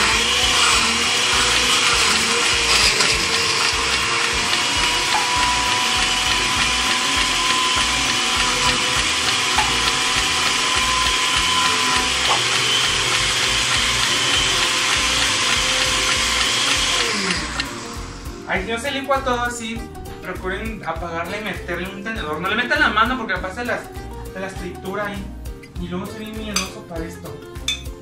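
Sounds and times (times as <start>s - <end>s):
blender running: 0.0s - 18.7s.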